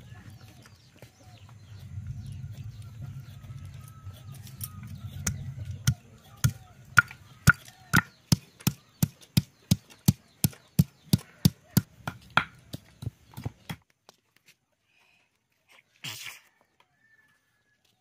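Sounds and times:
grinding stone pounding on slab: 5.2 - 13.8.

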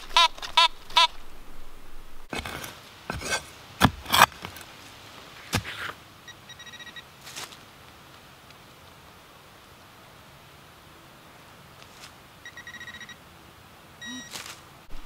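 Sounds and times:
shovel chopping into soil: 2.3 - 4.6, 5.4 - 6.0
faint electronic beep: 6.3 - 7.1, 12.4 - 13.2, 14.0 - 14.4.

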